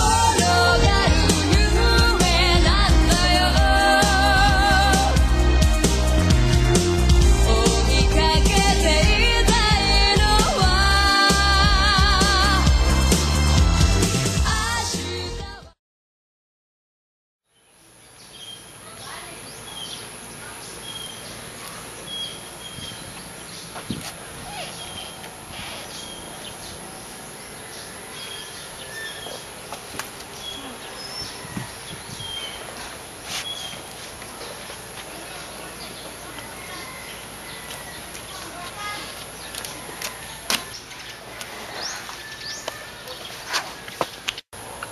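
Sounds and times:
pop song with steady beat: 0:00.0 - 0:15.8.

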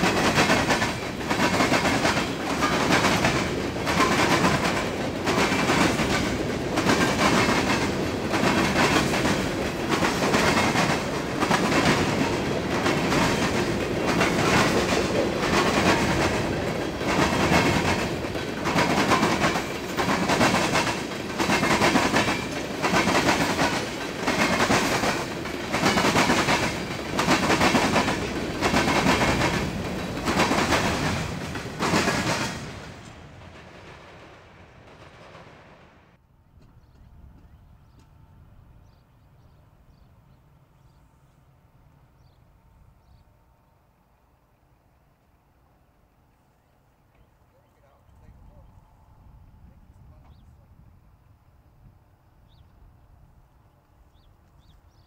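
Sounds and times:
train wheels clacking over crossings: 0:00.0 - 0:36.0
train rolling rumble: 0:00.0 - 0:40.9.

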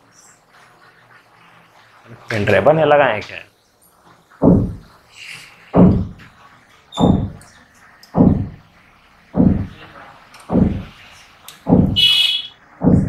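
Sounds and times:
dull thumps: 0:04.4 - 0:05.0, 0:05.8 - 0:06.3, 0:07.0 - 0:07.4, 0:08.2 - 0:08.6, 0:09.4 - 0:09.8, 0:10.5 - 0:10.9, 0:11.6 - 0:12.1, 0:12.8 - 0:13.0.

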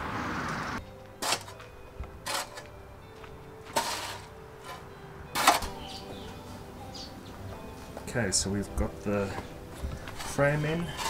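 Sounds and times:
shovel digging into dry soil: 0:01.2 - 0:01.6, 0:02.2 - 0:02.7, 0:03.7 - 0:05.8.

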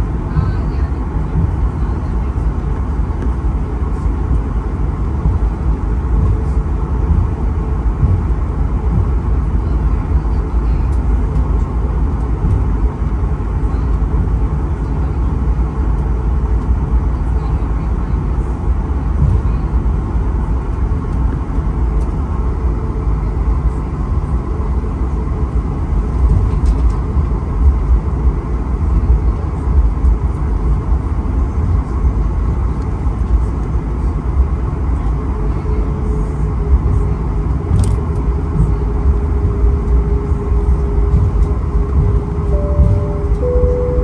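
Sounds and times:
steady hum: 0:00.0 - 0:20.8, 0:35.3 - 0:44.0
aircraft rolling rumble: 0:00.0 - 0:44.0
jet engines at low thrust: 0:00.0 - 0:44.0.

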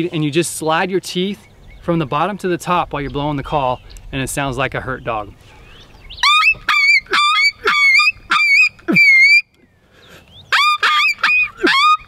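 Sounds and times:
predator call high yelps: 0:06.2 - 0:09.4, 0:10.5 - 0:12.0.

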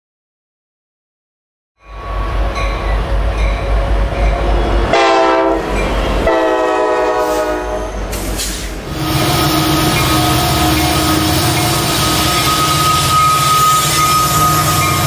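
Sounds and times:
diesel locomotive engine rumble: 0:01.8 - 0:15.0
rolling freight cars: 0:01.8 - 0:15.0
train air horn blasts: 0:04.9 - 0:08.0, 0:08.9 - 0:15.0.

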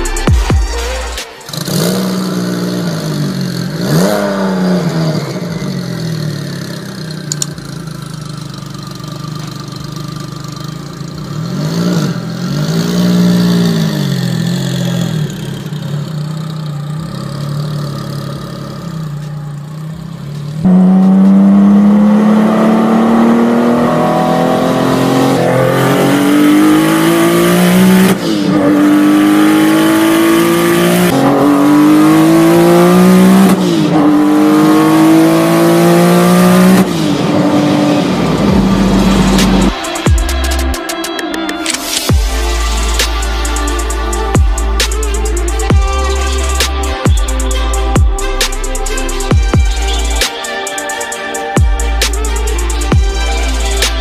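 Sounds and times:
sports car engine revving: 0:00.0 - 0:40.8, 0:41.8 - 0:54.0
car accelerating hard: 0:01.5 - 0:40.4.

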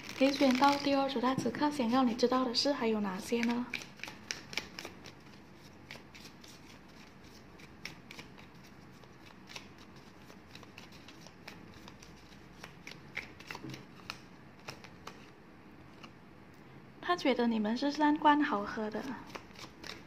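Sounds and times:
cards shuffled by hand: 0:00.0 - 0:01.0, 0:03.2 - 0:16.2, 0:19.0 - 0:20.0.

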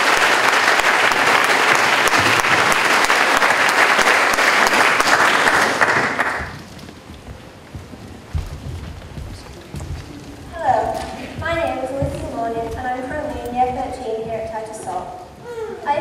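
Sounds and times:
audience applauding: 0:00.0 - 0:07.2
low thuds: 0:06.4 - 0:14.6.

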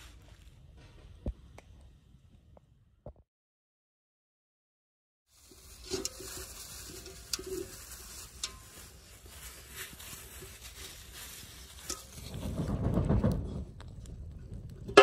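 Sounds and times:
scrubbing a pot: 0:05.3 - 0:12.8
wood fire crackling: 0:05.3 - 0:15.0.

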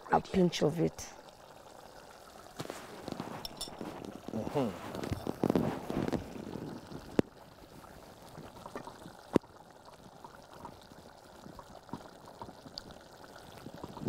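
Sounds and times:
chicken sizzling in a pot: 0:01.2 - 0:14.0
wooden spoon stirring: 0:02.7 - 0:06.4.

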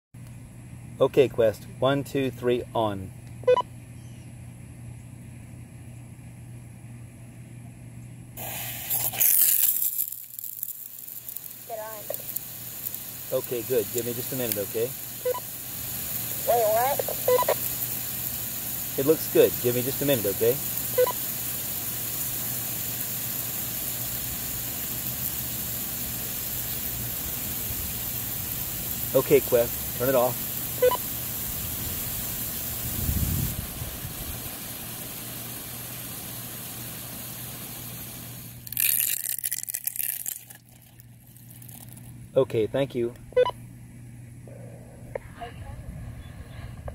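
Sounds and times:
steady low hum: 0:00.2 - 0:46.9
sprinkler hissing: 0:08.4 - 0:42.1.

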